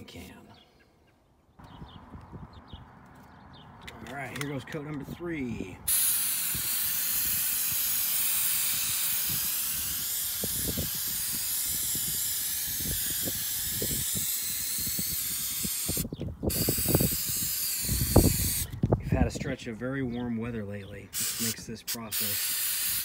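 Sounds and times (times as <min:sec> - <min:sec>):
aerosol spray hiss: 0:05.9 - 0:18.8, 0:21.2 - 0:23.0.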